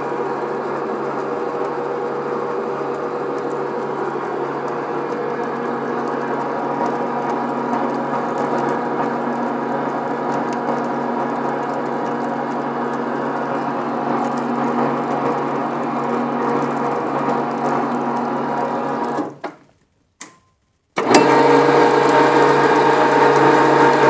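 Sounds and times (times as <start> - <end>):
threading machine humming: 0.0 - 19.4, 21.0 - 24.0.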